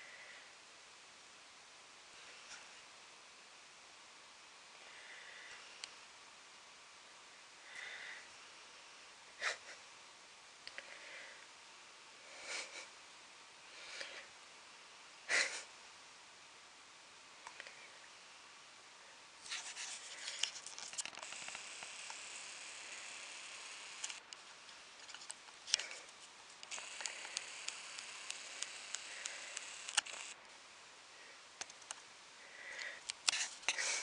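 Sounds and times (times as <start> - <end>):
camera zoom motor whirring: 20.8 - 24.3, 26.6 - 30.4
small sharp clicks: 23.9 - 24.4, 26.6 - 30.4.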